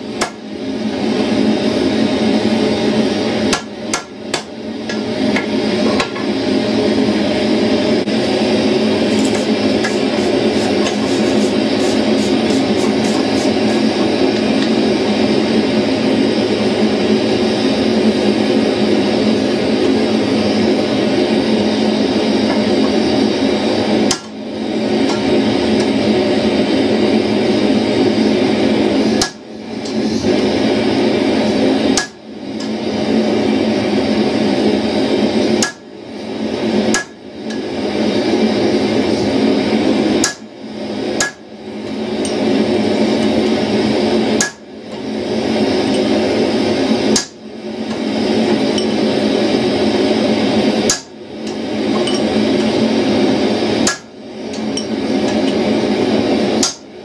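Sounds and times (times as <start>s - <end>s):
loud steady rushing noise: 4.6s - 57.0s
hammer striking on anvil: 41.2s - 41.4s, 56.6s - 56.8s.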